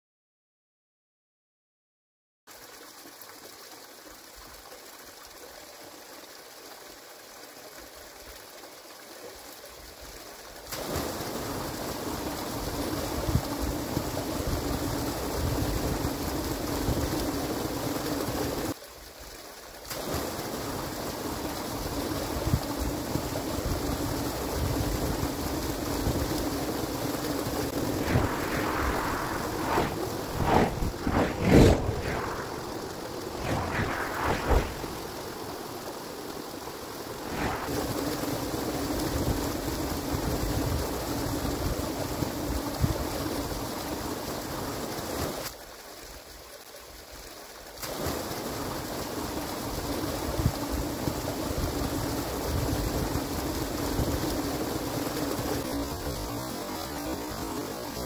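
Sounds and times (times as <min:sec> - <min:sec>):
water pouring into pool: 0:02.5 - 0:40.7, 0:43.1 - 0:50.2
vehicle passing: 0:27.8 - 0:32.8.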